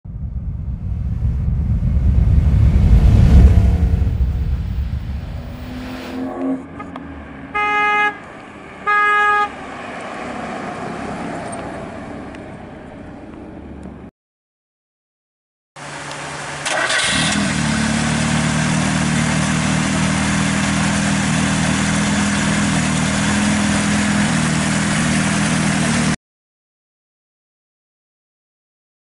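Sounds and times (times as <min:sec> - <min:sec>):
car engine driving past: 0:00.1 - 0:07.5
car horn toots: 0:07.5 - 0:09.6.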